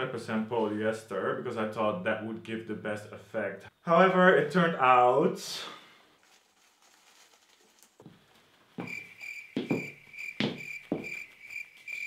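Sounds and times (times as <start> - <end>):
fabric rustling against microphone: 6.1 - 8.8
cricket chirping: 8.8 - 12.0.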